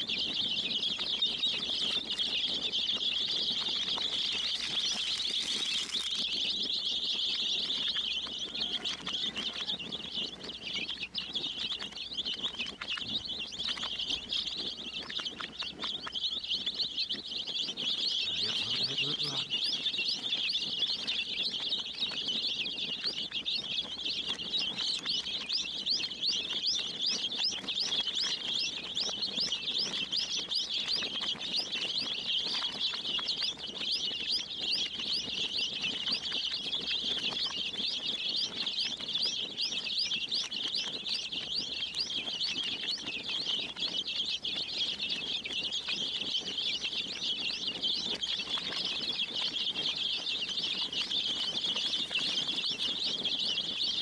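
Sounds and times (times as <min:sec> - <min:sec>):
baby chicks peeping: 0:00.0 - 0:54.0.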